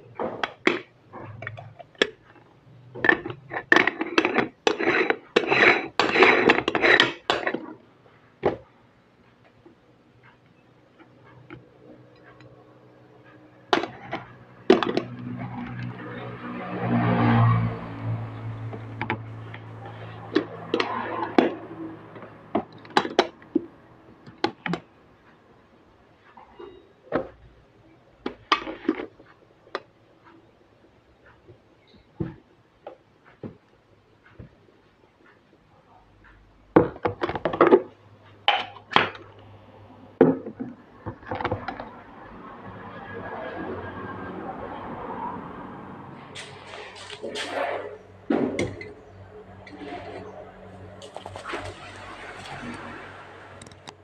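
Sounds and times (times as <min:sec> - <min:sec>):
metal grinding on metal: 0:46.3 - 0:54.0.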